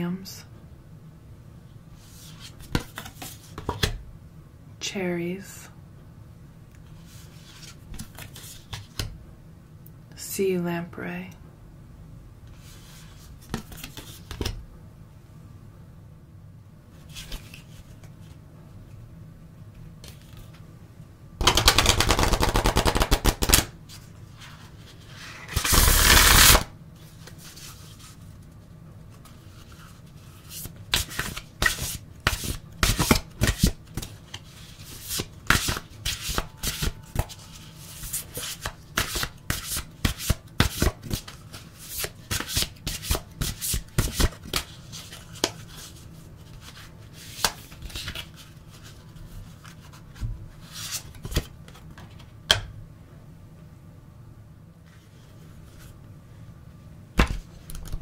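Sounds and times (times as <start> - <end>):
cards shuffling and snapping: 2.4 - 4.0, 7.4 - 9.1, 13.2 - 14.6, 21.4 - 24.0, 25.4 - 27.8, 29.5 - 48.9, 57.2 - 58.0
cards fluttering: 21.4 - 23.7, 25.4 - 26.7.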